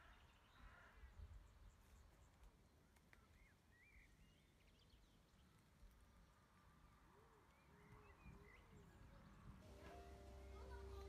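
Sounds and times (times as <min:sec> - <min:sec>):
faint bird chirps: 0:00.0 - 0:05.6.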